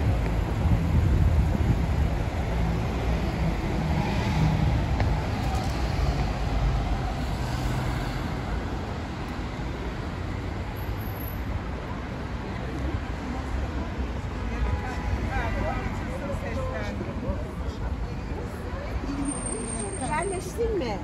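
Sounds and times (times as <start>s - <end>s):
car and bus engines passing: 0.0s - 21.0s.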